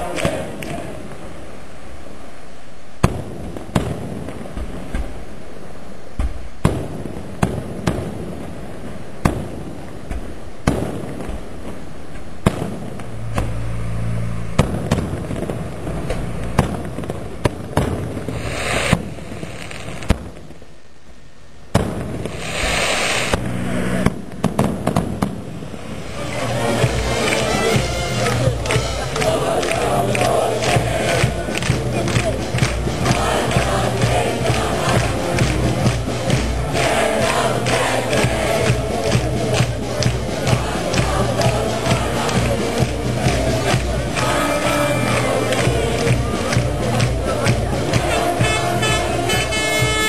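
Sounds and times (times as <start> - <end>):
firework shells exploding: 3.0 - 5.3, 6.6 - 13.5, 14.6 - 20.7, 21.7 - 26.3.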